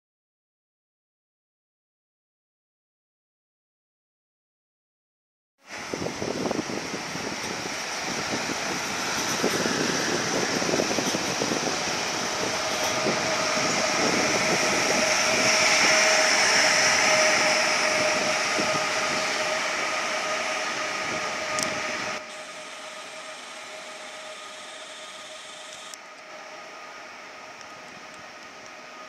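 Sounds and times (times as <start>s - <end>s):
steady hiss: 5.7s - 29.0s
train wheels rolling on rails: 5.7s - 29.0s
electric drive whine: 5.9s - 29.0s.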